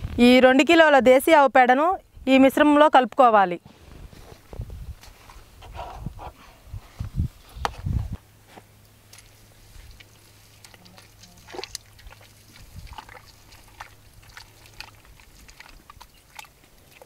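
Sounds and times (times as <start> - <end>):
soft splashes and drips: 8.8 - 17.0.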